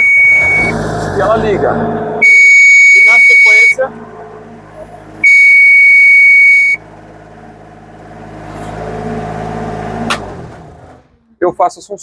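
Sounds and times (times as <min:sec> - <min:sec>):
high-pitched electronic beep: 0:00.0 - 0:00.8, 0:02.2 - 0:06.8
machine hum: 0:00.0 - 0:11.4.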